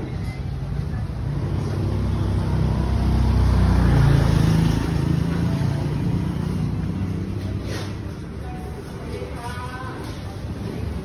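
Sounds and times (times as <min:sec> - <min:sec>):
vehicle engine passing by: 0:01.1 - 0:08.4.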